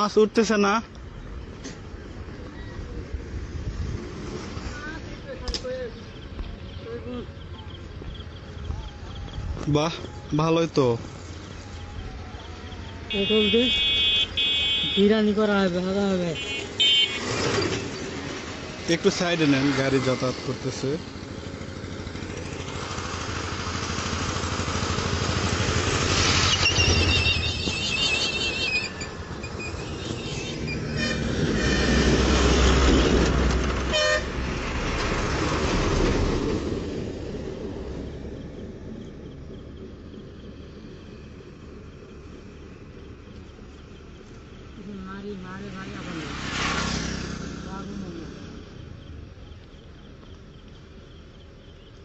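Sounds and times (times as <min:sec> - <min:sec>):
insects chirping: 0:00.0 - 0:52.0
vehicle engine approaching: 0:17.2 - 0:51.7.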